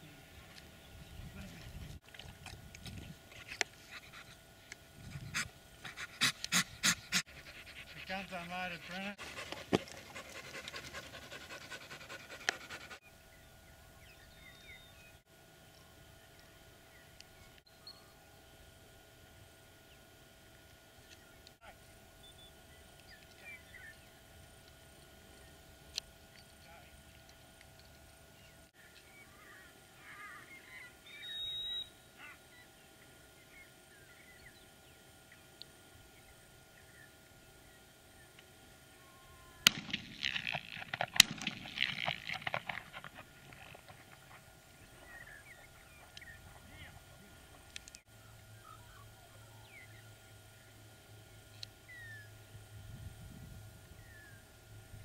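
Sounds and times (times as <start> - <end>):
dog panting fast: 5.2 - 13.0
faint high chirps: 30.6 - 32.0.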